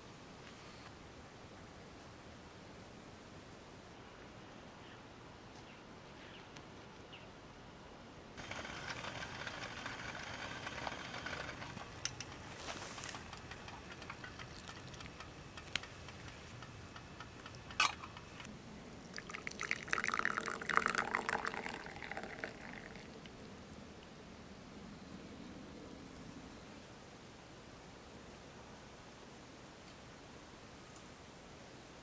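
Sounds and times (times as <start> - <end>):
tea pouring into a cup: 14.0 - 15.2, 18.9 - 23.3.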